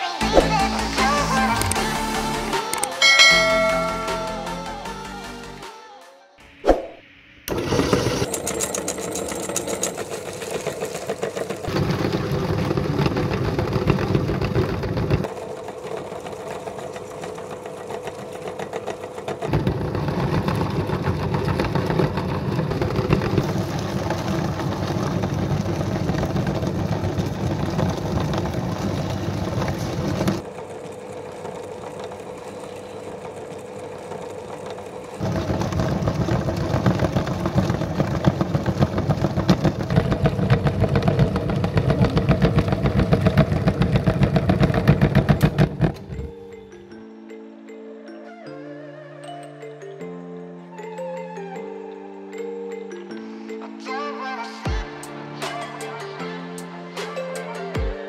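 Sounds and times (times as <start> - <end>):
meat grinder running: 7.5 - 46.4.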